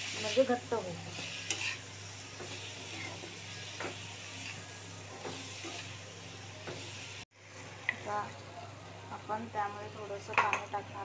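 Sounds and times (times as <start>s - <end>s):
vegetables sizzling in oil: 0.0s - 11.0s
metal spatula scraping pan: 1.1s - 5.9s.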